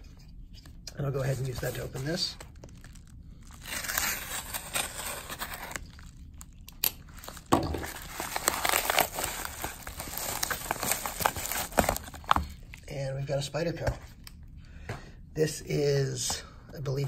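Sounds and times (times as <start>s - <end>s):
paper mailer crinkling and tearing: 1.0s - 12.7s.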